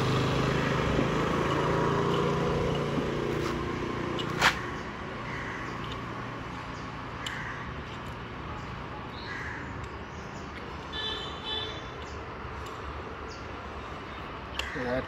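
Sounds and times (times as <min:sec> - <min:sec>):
low engine-like hum: 0:00.0 - 0:09.1
sharp click: 0:14.5 - 0:14.8.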